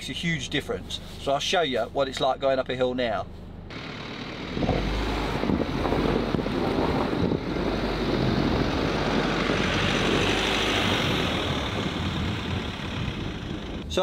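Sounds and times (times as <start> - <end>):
diesel van engine under load: 0.0 - 14.0
tyres churning through snow: 3.7 - 14.0.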